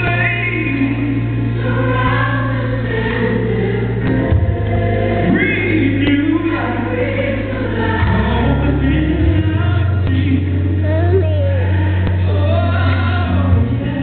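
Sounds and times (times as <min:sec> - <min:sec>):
deep held bass line: 0:00.0 - 0:14.0
gospel choir singing: 0:00.0 - 0:14.0.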